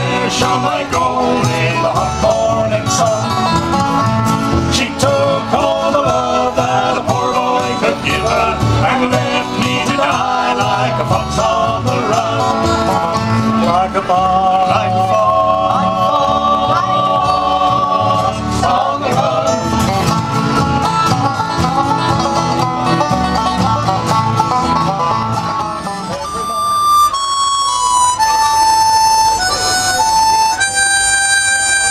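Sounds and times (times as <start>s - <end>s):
men singing in harmony: 0.0s - 3.8s, 4.5s - 20.0s
bluegrass band playing: 0.0s - 31.9s
fiddle: 0.0s - 31.9s.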